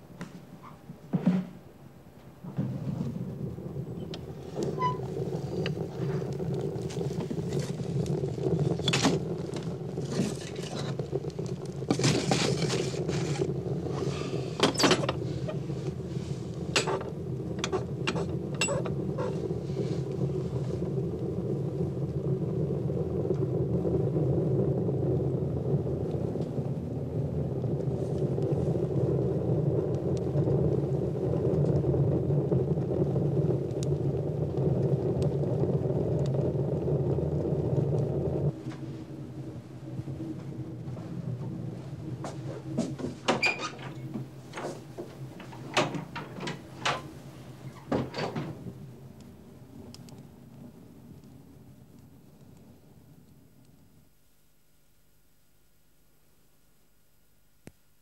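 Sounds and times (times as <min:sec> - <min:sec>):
low rumbling drone: 0:02.9 - 0:47.7
sharp clicks and crackles: 0:03.4 - 0:24.2, 0:25.4 - 0:41.7, 0:42.6 - 0:53.9.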